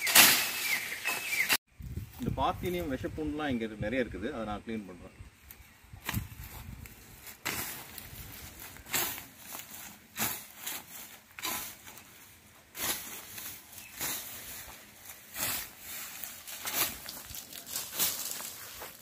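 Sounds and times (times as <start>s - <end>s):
blade slashing through dry weeds: 0.0s - 1.5s, 6.0s - 12.1s, 12.7s - 19.0s
rustling of cut stems: 5.5s - 19.0s.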